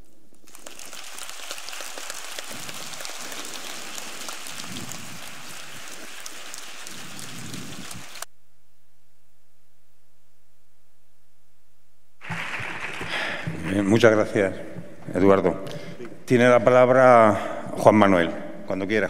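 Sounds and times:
audience applauding: 0.4s - 8.3s, 12.2s - 13.9s.

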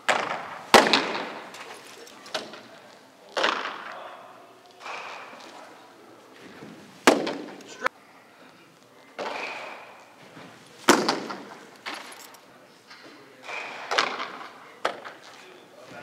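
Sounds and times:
ball smacking into catcher's mitt: 0.1s - 1.7s, 7.0s - 7.7s, 10.8s - 12.0s.

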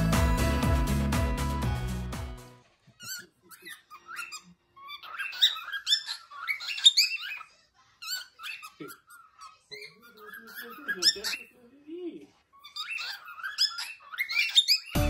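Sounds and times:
cockatiel chirping and whistling: 3.0s - 11.5s, 12.5s - 15.0s.

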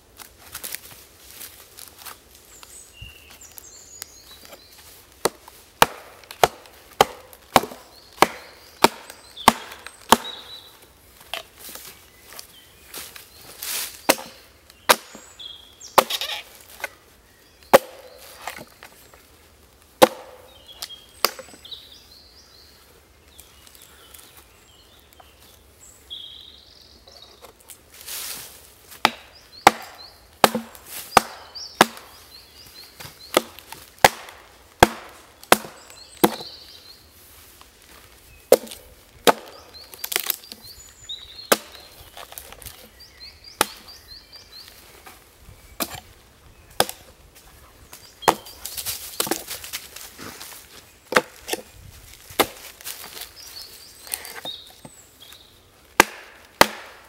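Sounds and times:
axe chopping log: 5.2s - 10.6s, 14.1s - 15.3s, 16.0s - 16.9s, 17.7s - 18.7s, 20.0s - 20.6s, 21.2s - 21.5s, 29.0s - 32.1s, 33.0s - 36.6s, 38.5s - 40.4s, 41.5s - 42.8s, 43.6s - 43.9s, 45.8s - 46.1s, 46.8s - 47.0s, 48.2s - 48.6s, 51.1s - 51.7s, 52.3s - 53.0s, 56.0s - 57.0s.

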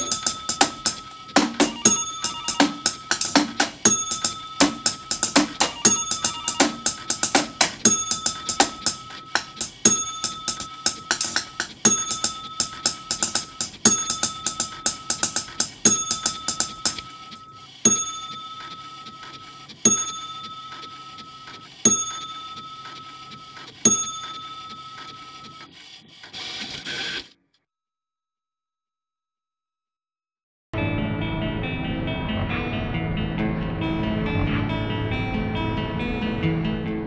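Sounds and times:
steady held tone: 0.0s - 18.9s.

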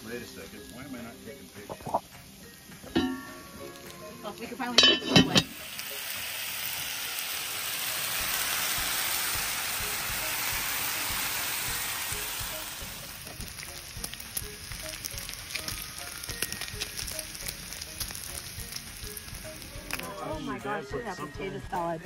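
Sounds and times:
bacon sizzling on griddle: 0.0s - 20.5s
grease popping and spitting: 1.6s - 2.2s, 8.1s - 20.2s.

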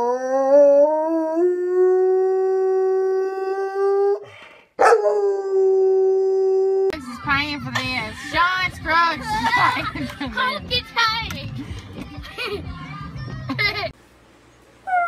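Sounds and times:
dog howling: 4.8s - 7.0s
voices: 6.9s - 13.9s.

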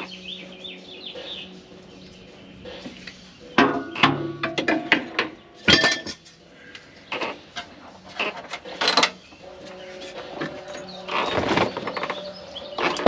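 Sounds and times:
knocks and clinks of tools: 2.8s - 9.2s.

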